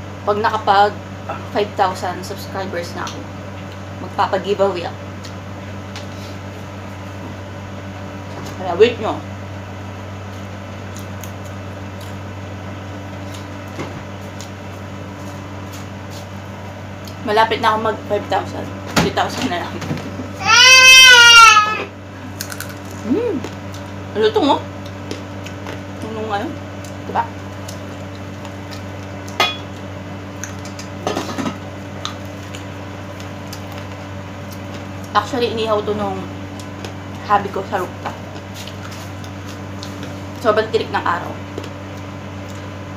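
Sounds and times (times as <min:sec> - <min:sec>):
low mechanical appliance hum: 0:00.0 - 0:42.9
person chewing: 0:22.3 - 0:23.9.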